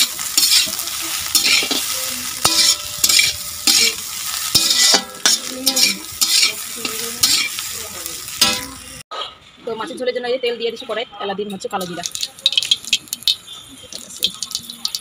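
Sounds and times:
metal spatula scraping a pan: 0.0s - 8.9s
hot oil sizzling: 0.0s - 9.0s, 11.7s - 15.0s.

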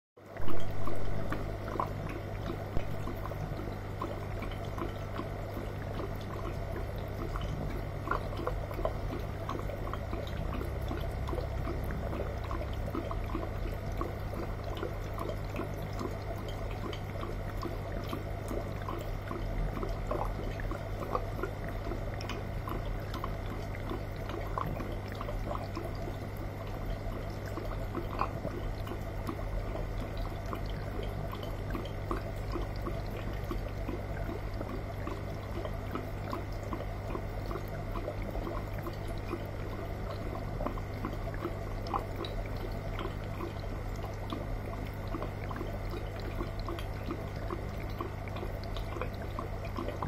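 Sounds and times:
aquarium water trickling and bubbling: 0.2s - 50.0s
low steady hum: 0.2s - 50.0s.

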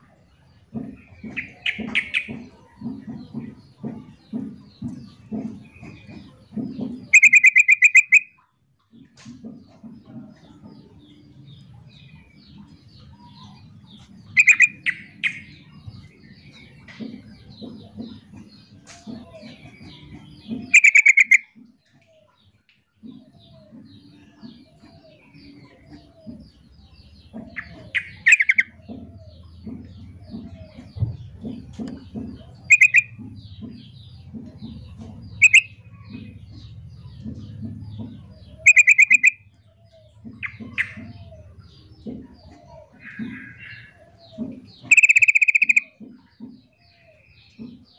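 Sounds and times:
faint bird chirping: 0.0s - 8.5s, 9.6s - 47.9s
bird calling in bubbly bursts: 7.1s - 8.4s, 20.7s - 21.5s, 32.7s - 33.2s, 38.6s - 39.4s, 44.9s - 46.0s
low background rumble: 23.3s - 44.9s.

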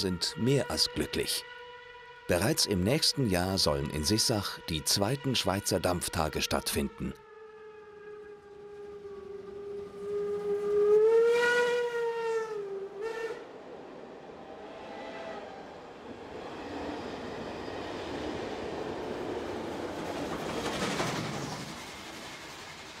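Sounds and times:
train rolling past: 8.5s - 23.0s
steam whistle blast: 8.6s - 13.4s.

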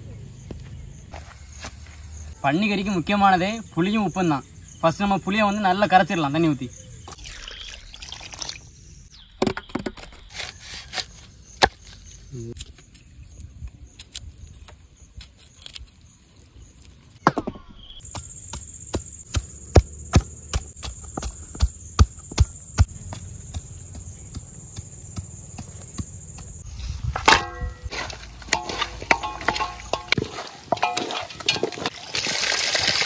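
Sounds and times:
high insect trill: 17.8s - 33.0s.

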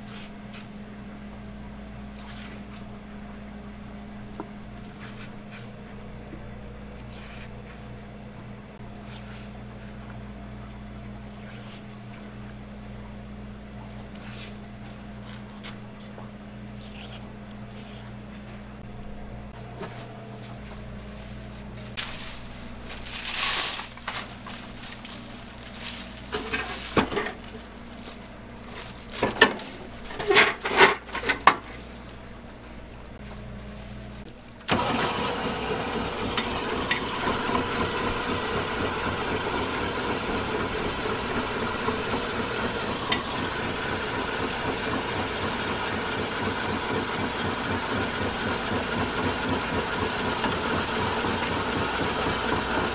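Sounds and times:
ice shaving machine running: 34.4s - 52.9s.

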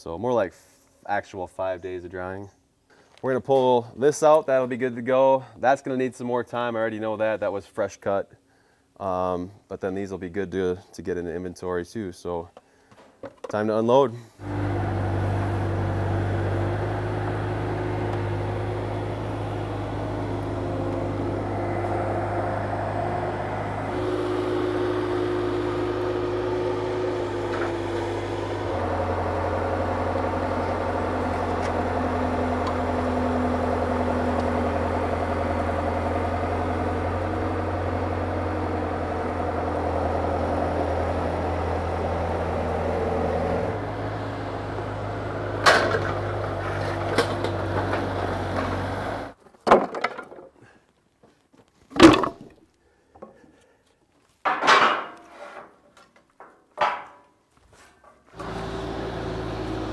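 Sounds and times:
skid steer loader engine running: 14.4s - 49.4s, 58.3s - 59.9s
wooden boards clacking: 49.4s - 50.6s, 51.9s - 52.5s, 54.4s - 55.3s, 56.4s - 57.2s.

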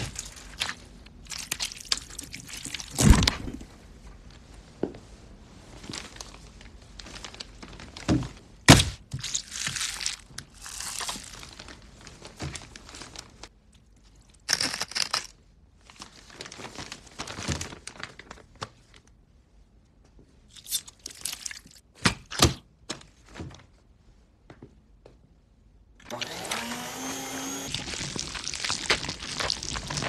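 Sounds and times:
cling film crinkling: 5.8s - 8.1s, 14.5s - 19.1s, 27.1s - 30.0s.

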